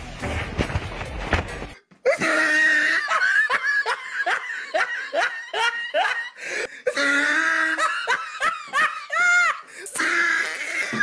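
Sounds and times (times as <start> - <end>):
person laughing hard: 2.0 - 9.7.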